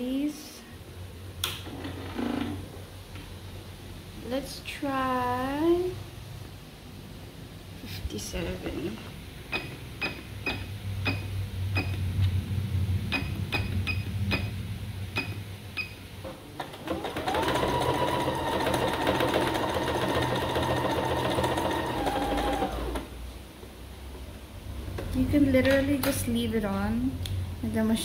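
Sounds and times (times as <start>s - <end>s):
sewing machine motor whining: 16.8s - 23.1s.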